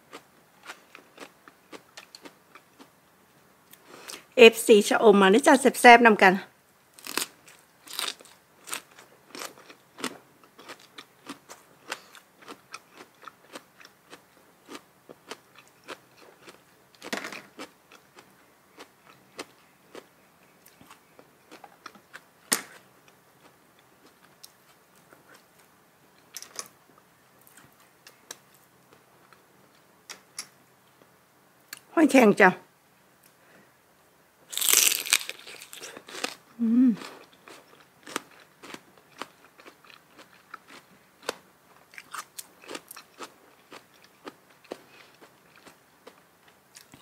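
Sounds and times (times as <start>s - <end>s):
loud crunching bites: 7.0s - 12.6s, 34.5s - 36.4s
person chewing wet crunches: 7.0s - 22.3s, 34.5s - 47.0s.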